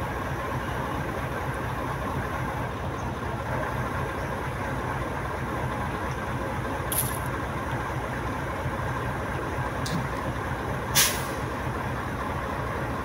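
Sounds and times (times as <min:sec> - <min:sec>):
truck engine running: 0:00.0 - 0:13.0
sharp hiss: 0:11.0 - 0:11.4.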